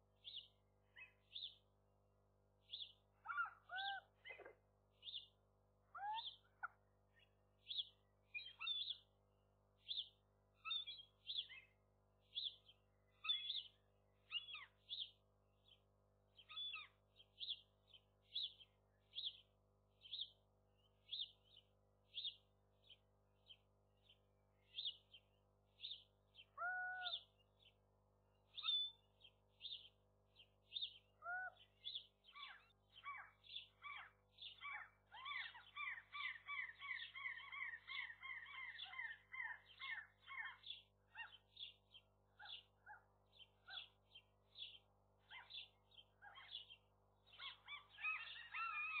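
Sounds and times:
lower longer bird calls: 2.7s - 5.3s, 5.9s - 9.1s, 9.8s - 15.8s, 16.4s - 17.7s, 25.8s - 27.8s, 28.5s - 49.0s
short high bird calls: 26.6s - 27.3s, 47.3s - 49.0s.

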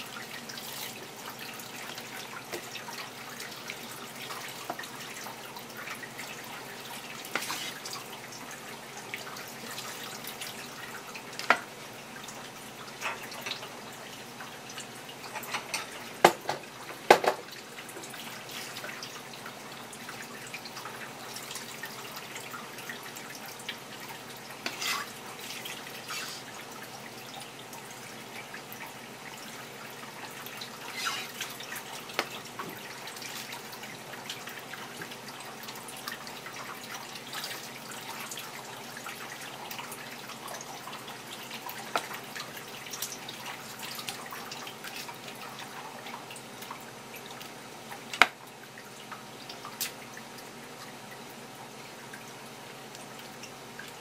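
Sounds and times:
water running in sink: 0.0s - 54.0s
knife on cutting board: 7.3s - 7.8s, 24.6s - 25.2s, 26.1s - 26.5s, 30.9s - 31.5s.

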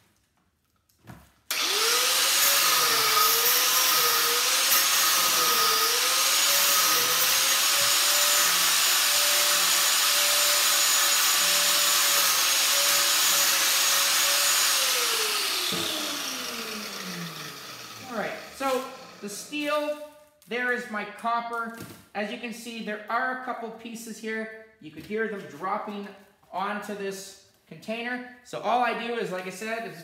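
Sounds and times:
angle grinder grinding metal: 1.5s - 20.0s.

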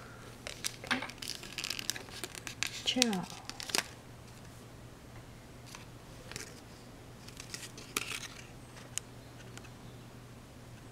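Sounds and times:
steady low hum: 0.0s - 10.9s
foil wrapper crinkling: 0.4s - 4.5s, 7.2s - 9.0s.

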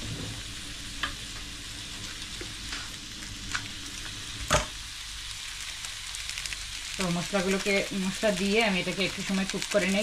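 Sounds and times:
food sizzling in a wok: 0.0s - 10.0s.

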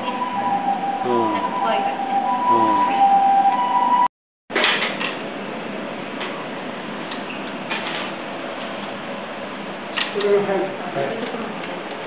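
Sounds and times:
steady high tone: 0.0s - 4.1s.

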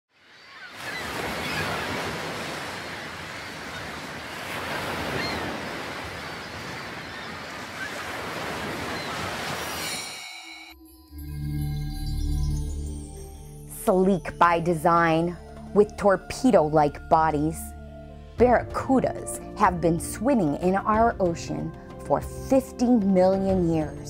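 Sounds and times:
ocean waves: 0.1s - 10.7s.

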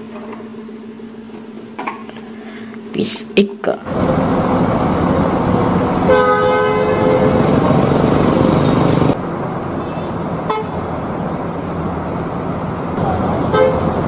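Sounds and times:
bus engines running: 3.8s - 14.0s
traffic: 3.9s - 14.0s
vehicle horn two-note chord: 6.1s - 7.7s, 9.8s - 10.8s, 13.5s - 13.9s.

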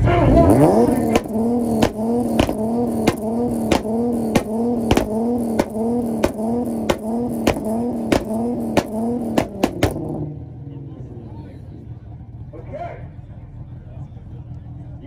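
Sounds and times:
car engine revving: 0.0s - 13.8s
exhaust pops and bangs: 0.8s - 10.2s.

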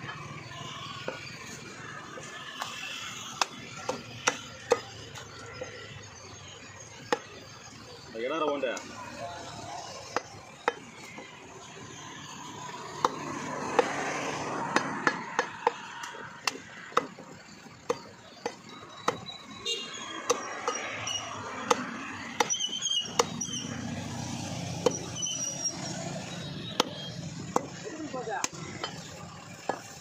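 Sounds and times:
knife chopping meat and bone: 2.6s - 5.0s, 7.0s - 7.4s, 12.9s - 14.1s, 14.7s - 17.3s, 17.9s - 19.3s, 20.2s - 23.6s.

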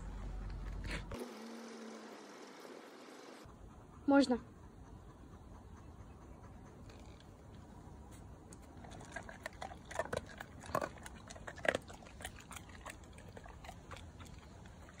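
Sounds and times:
dog crunching dry treats: 8.5s - 15.0s.

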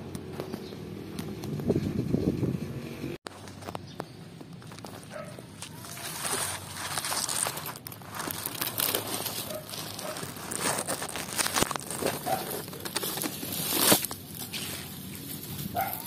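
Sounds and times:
dry leaves rustling: 3.3s - 16.0s.

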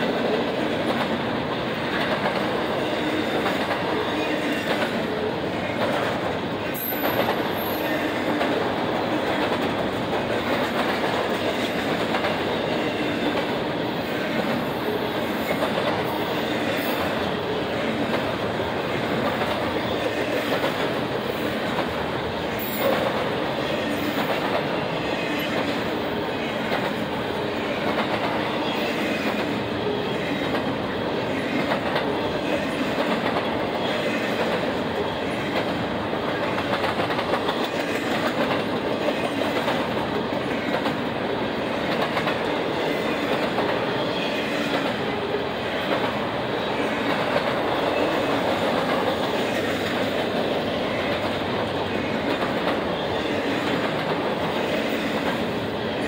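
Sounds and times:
freight train wheels rolling on rail: 0.0s - 56.0s.

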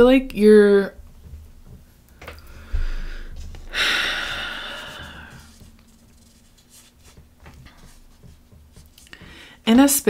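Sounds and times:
person exhaling breathily: 2.5s - 5.5s.

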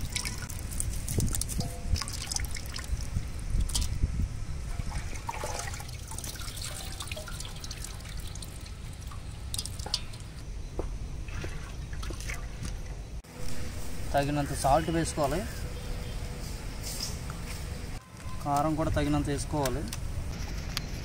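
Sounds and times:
water dripping into metal bowl: 0.0s - 4.0s, 4.7s - 10.4s.

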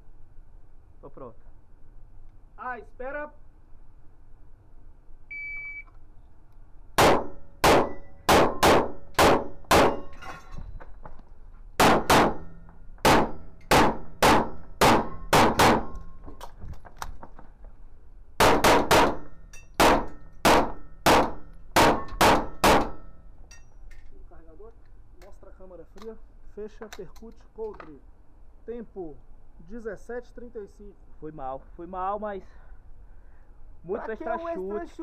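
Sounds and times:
shot timer beep: 5.3s - 5.9s
rapid pistol shots: 7.0s - 10.1s, 11.8s - 16.0s, 18.4s - 23.1s.

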